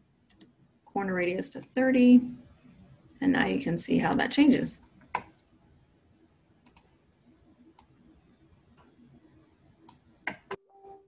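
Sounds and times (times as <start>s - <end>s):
computer mouse clicks: 0.3s - 0.6s, 5.0s - 5.4s, 6.6s - 6.9s, 7.7s - 8.1s, 9.8s - 10.6s.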